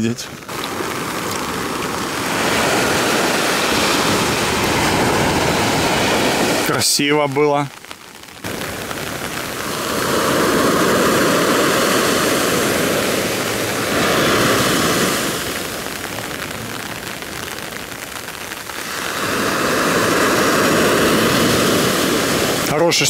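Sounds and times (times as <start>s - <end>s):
rain: 0.0s - 23.0s
storm surf: 0.0s - 23.0s.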